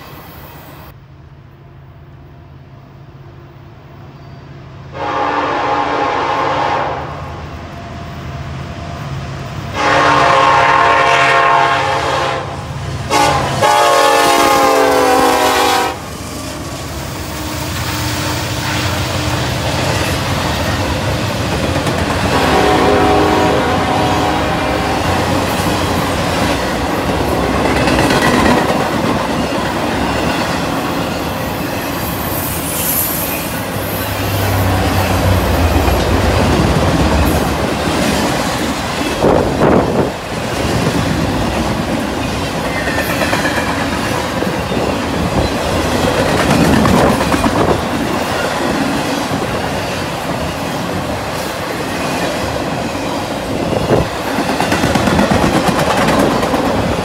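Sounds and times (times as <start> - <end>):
freight train rumbling past: 0.0 - 57.0
high wheel squeal: 30.1 - 35.5.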